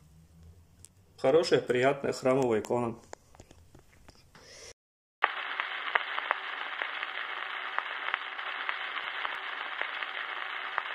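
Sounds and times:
steady static hiss: 5.2 - 10.9.

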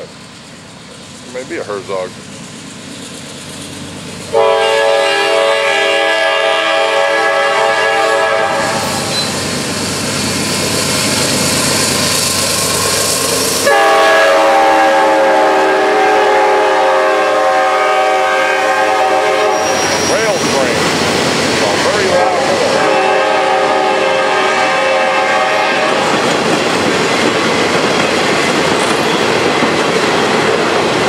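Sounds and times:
locomotive air horn blasts: 4.3 - 9.3, 13.6 - 20.2, 22.0 - 26.0
train wheels clattering on rails: 25.8 - 31.0.

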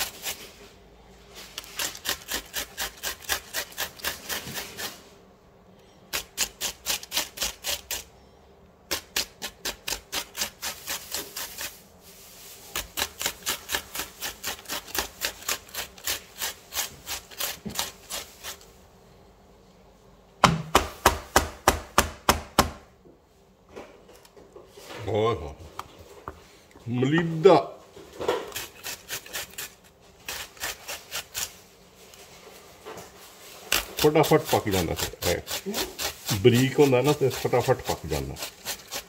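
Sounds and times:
onion grated on metal grater: 0.0 - 0.7, 1.3 - 5.1, 6.1 - 8.1, 8.9 - 18.7, 28.2 - 32.6, 33.4 - 39.0.

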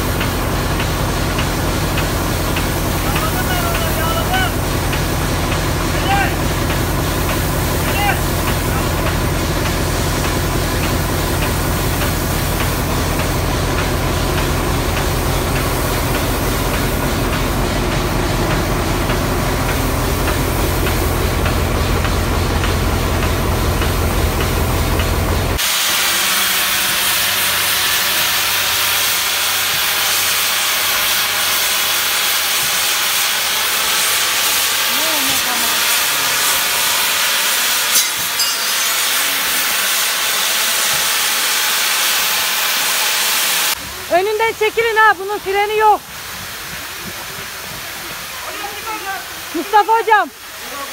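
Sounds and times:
steam venting hiss: 0.0 - 50.9.

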